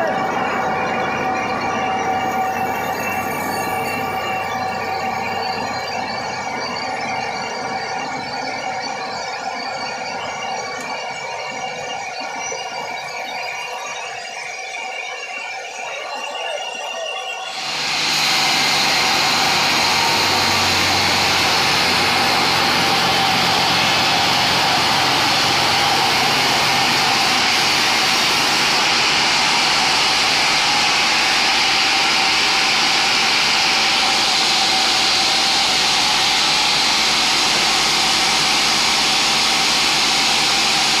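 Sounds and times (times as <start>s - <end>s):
band saw whirring: 0.0s - 6.6s, 17.4s - 41.0s
low hum: 17.6s - 41.0s.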